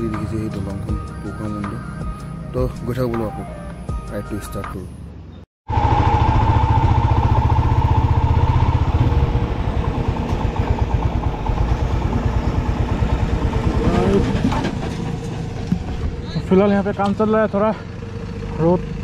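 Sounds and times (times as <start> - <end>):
motorcycle engine running: 5.7 - 19.0.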